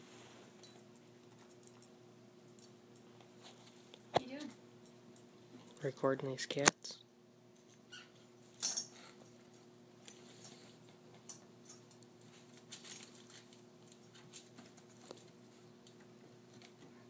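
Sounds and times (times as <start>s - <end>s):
faint steady hum: 0.0s - 17.0s
kittens scuffling: 8.6s - 17.0s.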